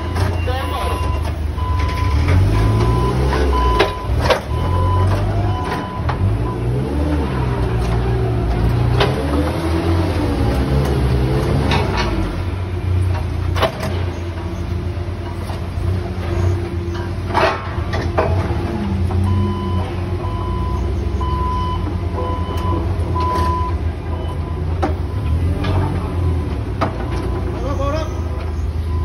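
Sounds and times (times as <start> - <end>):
backup alarm beeping: 0.0 - 6.8, 19.2 - 25.3, 26.2 - 29.0
forklift engine rumble and rattle: 0.0 - 29.0.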